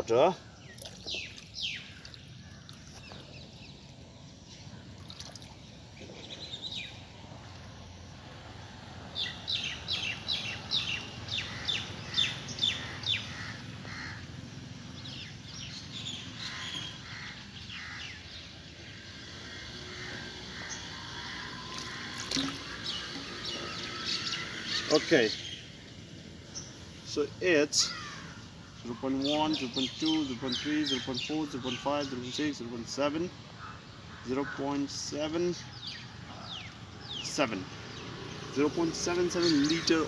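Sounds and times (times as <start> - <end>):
birds chirping: 0.0 - 40.0
water trickling and dripping: 0.7 - 3.1, 5.0 - 5.7, 21.7 - 24.0.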